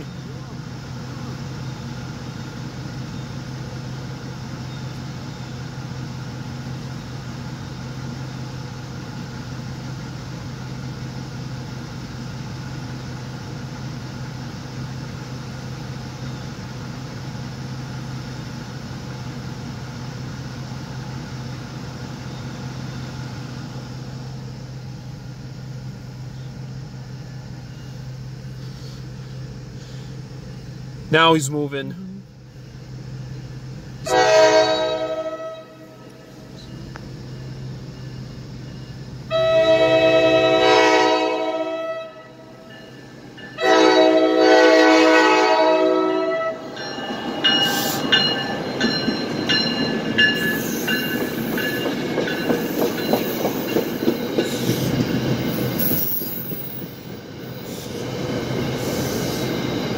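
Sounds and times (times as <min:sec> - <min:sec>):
car engine idling: 0:00.0 - 0:39.8.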